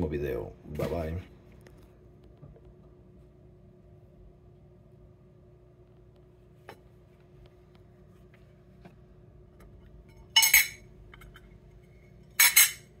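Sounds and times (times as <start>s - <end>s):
tin cans clinking: 12.3s - 12.9s.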